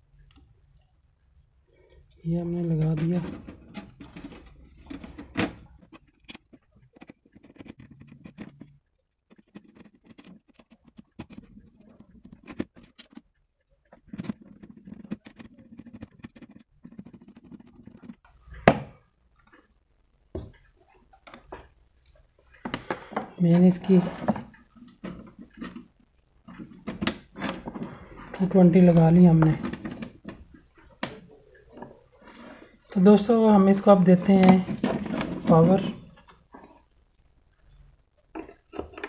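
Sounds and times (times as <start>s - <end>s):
clicks taps and rubbing: 2.8s - 33.0s.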